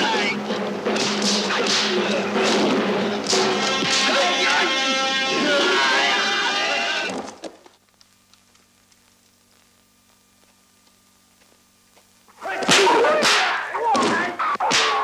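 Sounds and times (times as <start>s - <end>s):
fighters shouting: 0.0s - 0.4s, 3.4s - 7.1s, 12.4s - 15.0s
faint film hum: 0.0s - 15.0s
punch and kick sound effects: 0.9s - 4.2s.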